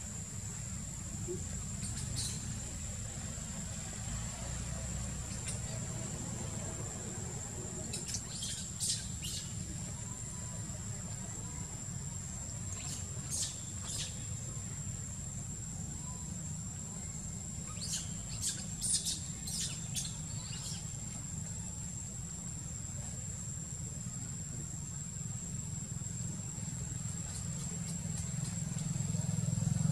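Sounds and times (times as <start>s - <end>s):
birds chirping: 1.7s - 2.7s, 16.0s - 21.7s.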